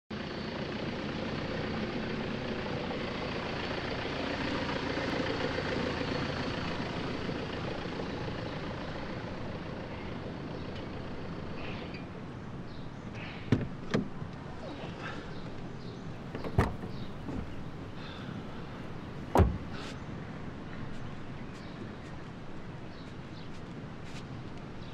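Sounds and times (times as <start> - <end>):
sharp knocks: 19.3 - 19.9.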